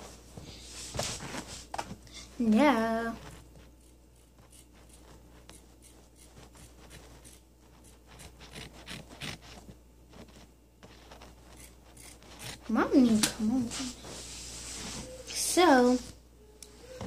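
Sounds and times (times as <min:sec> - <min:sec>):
scissors snipping fabric: 0:03.6 - 0:09.7, 0:10.3 - 0:13.3.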